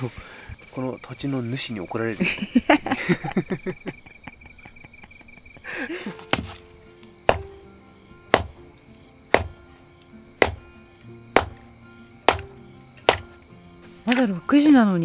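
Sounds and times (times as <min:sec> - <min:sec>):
slow beat background music: 0:06.0 - 0:15.0.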